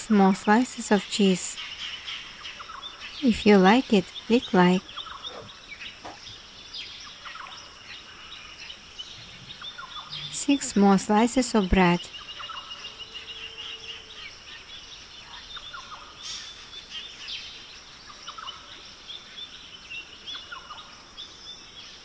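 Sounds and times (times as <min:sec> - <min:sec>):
birds chirping: 0:00.0 - 0:22.0
steady high hiss: 0:00.1 - 0:22.0.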